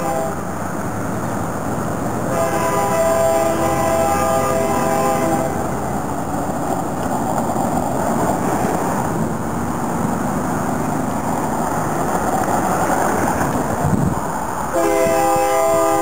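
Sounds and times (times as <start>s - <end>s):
locomotive air horn chord: 0.0s - 0.5s, 2.3s - 5.6s, 14.7s - 16.0s
distant diesel locomotive rumble: 0.0s - 16.0s
highway traffic rushing: 0.0s - 16.0s.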